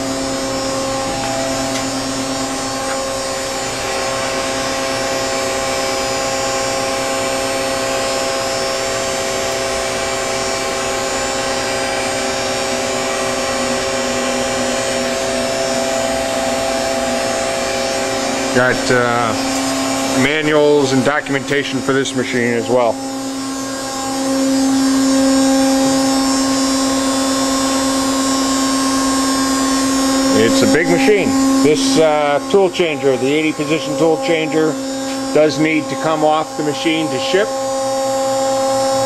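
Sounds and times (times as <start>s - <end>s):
constant mechanical drone: 0.0s - 39.0s
machine steady tones: 0.0s - 39.0s.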